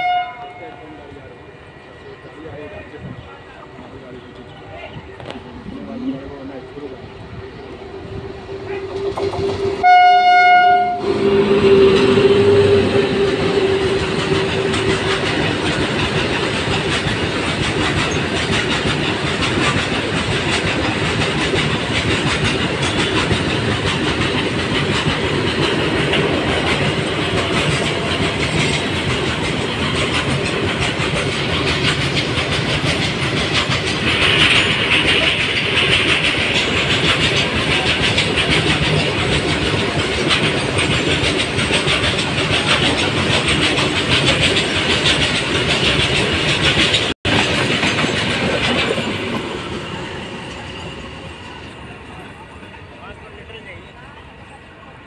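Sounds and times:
train horn: 0.0s - 1.0s, 8.2s - 15.2s
freight train rumbling: 0.0s - 55.0s
wheels clicking over rail joints: 11.9s - 49.7s.

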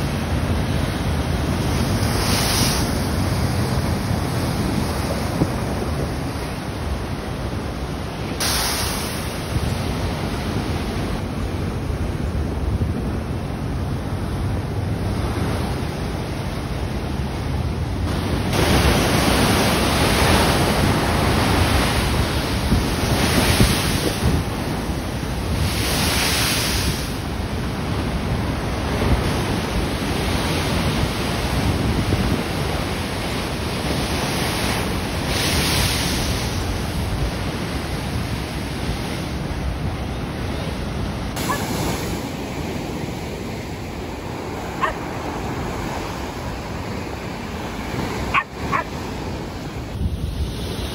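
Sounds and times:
wind buffeting microphone: 17.8s - 50.9s.

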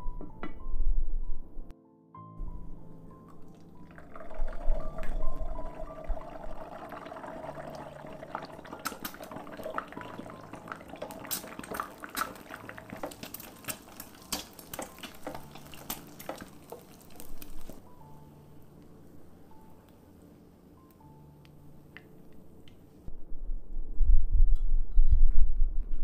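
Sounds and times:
egg frying in hot oil: 3.8s - 17.8s.

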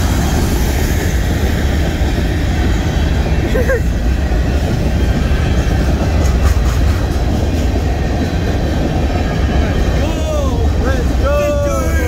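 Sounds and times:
freight train wheels rumbling on rails: 0.0s - 12.0s.

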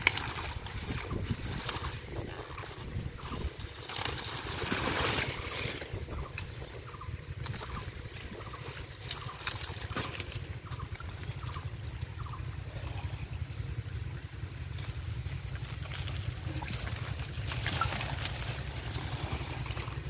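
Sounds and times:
hands splashing in muddy water: 0.0s - 6.6s, 15.4s - 20.0s.

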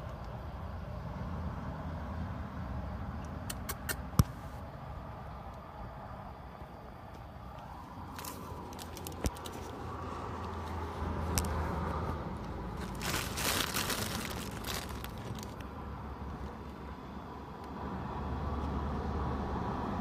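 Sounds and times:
low rumble of road traffic: 0.0s - 20.0s
crinkling and rustling handling noises: 7.5s - 15.7s.

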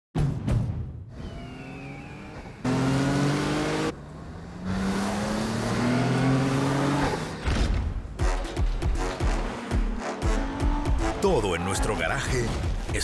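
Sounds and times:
truck engine revving hard: 1.2s - 7.4s.

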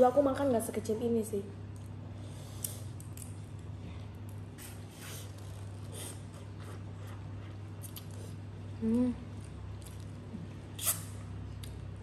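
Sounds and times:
steady low hum: 0.0s - 12.0s
wet sucking: 10.7s - 11.2s.

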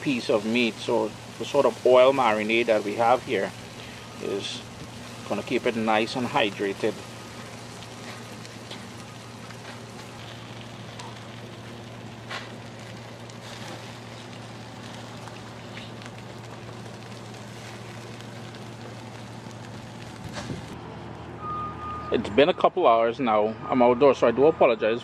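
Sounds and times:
meat sizzling on a charcoal grill: 0.0s - 20.8s
low hum: 0.0s - 21.7s
sharp pops: 12.2s - 13.9s, 20.2s - 20.8s.

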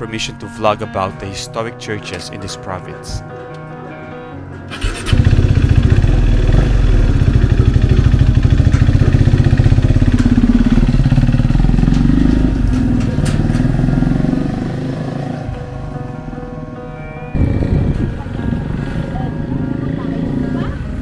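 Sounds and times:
motorcycle engine starting and running: 4.7s - 16.1s, 17.3s - 21.0s.

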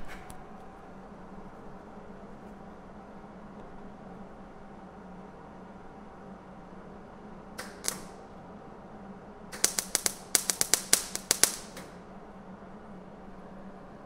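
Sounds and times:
welding arc crackling pops: 7.6s - 8.4s, 9.5s - 12.0s.

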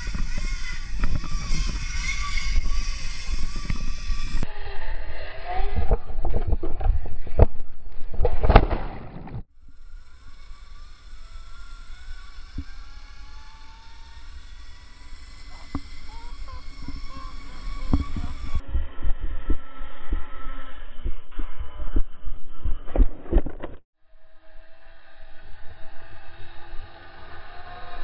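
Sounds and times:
faint whine rising in pitch: 0.0s - 8.0s, 9.6s - 23.3s, 24.0s - 28.0s
wind rumbling on microphone: 0.0s - 9.4s, 15.6s - 23.8s.

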